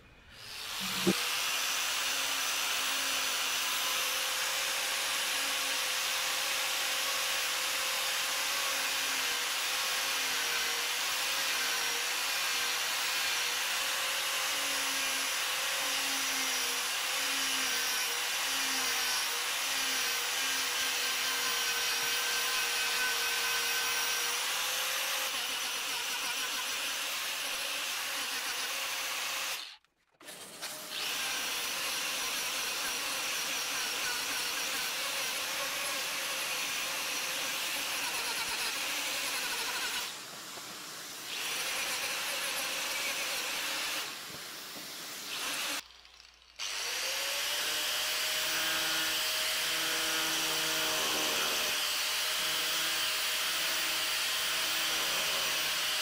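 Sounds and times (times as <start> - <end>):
power carver grinding wood: 0.3 - 56.0.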